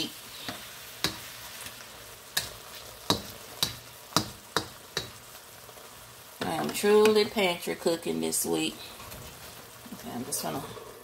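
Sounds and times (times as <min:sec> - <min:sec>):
chicken sizzling in a pan: 0:00.0 - 0:11.0.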